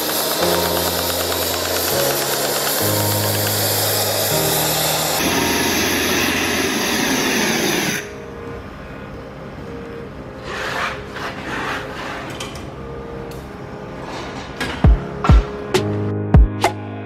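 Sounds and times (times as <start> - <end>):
gas torch hissing: 0.0 - 8.2.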